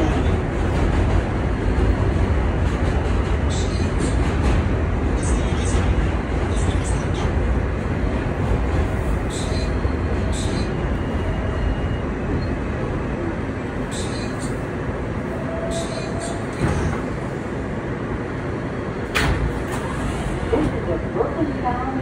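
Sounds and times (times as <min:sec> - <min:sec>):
train clicks and rattles: 0:00.0 - 0:11.0, 0:15.6 - 0:17.3, 0:19.0 - 0:22.0
subway train rumble: 0:00.0 - 0:22.0.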